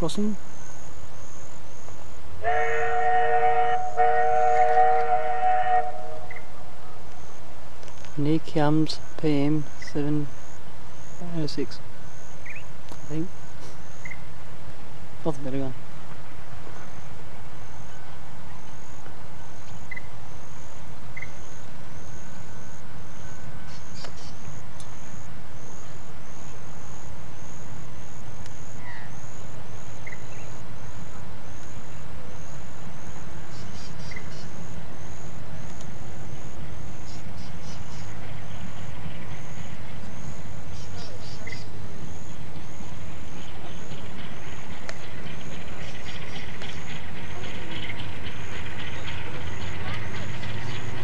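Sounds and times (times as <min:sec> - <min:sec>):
bird chirps: 0:06.2 - 0:07.0, 0:12.4 - 0:13.2, 0:23.7 - 0:24.5, 0:30.0 - 0:30.5, 0:33.5 - 0:34.6, 0:37.0 - 0:38.2, 0:40.7 - 0:41.8
low rumble: 0:41.7 - 0:51.0.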